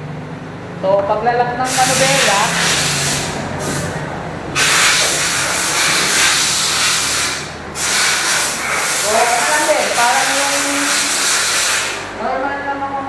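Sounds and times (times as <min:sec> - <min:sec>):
person speaking: 0:00.8 - 0:03.2, 0:09.0 - 0:11.1
loud steady hiss: 0:01.6 - 0:12.2.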